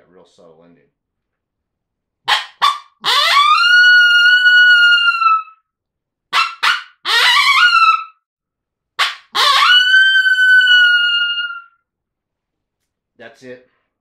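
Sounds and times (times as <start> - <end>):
predator call coyote barks and howls: 2.3 - 5.6, 6.3 - 8.1, 9.0 - 11.7.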